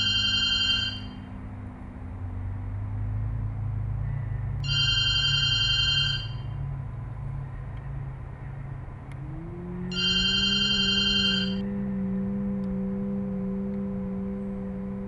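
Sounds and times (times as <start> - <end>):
telephone ringing: 0.0 - 1.2, 4.6 - 6.4, 9.9 - 11.6
low hum: 0.0 - 15.0
low tone sliding up: 0.0 - 15.0.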